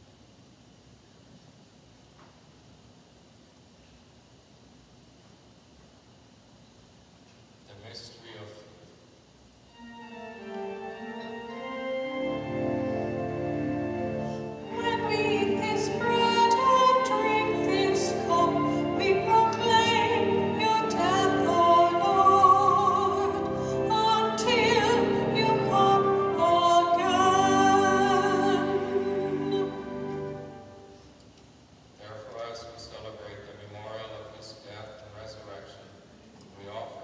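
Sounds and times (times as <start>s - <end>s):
organ holding sustained notes: 9.7s - 31.2s
person singing with vibrato: 14.1s - 31.0s.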